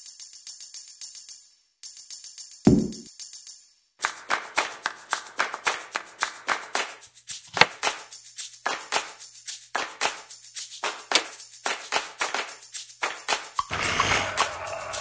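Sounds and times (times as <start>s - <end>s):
sharp percussion beat: 2.7s - 3.1s, 13.6s - 15.0s.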